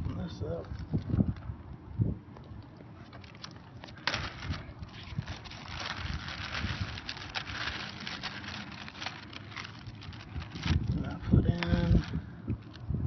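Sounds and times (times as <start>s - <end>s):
plastic bag crinkling: 3.0s - 12.9s.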